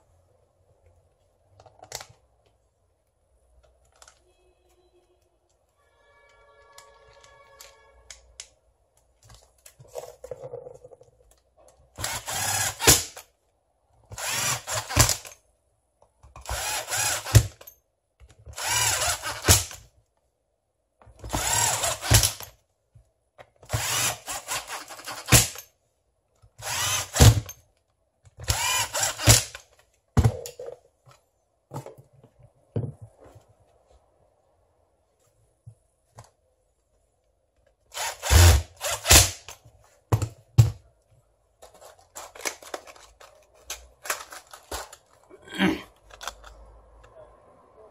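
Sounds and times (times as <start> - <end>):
cordless power tool motor pulses: 16.4 - 17.4, 18.6 - 19.5, 26.6 - 27.3, 28.4 - 29.4, 38.0 - 39.1.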